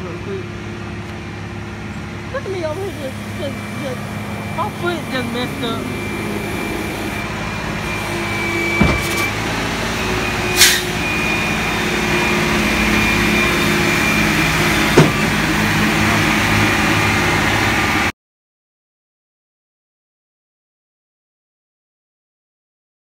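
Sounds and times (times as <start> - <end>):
truck engine running: 0.0 - 18.1.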